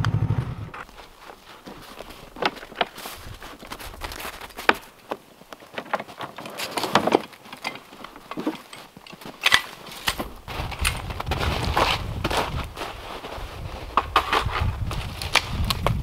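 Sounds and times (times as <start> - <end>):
snow crunching and scuffing: 0.8 - 5.7, 8.4 - 16.0
gear rustling in plastic sled: 0.8 - 16.0.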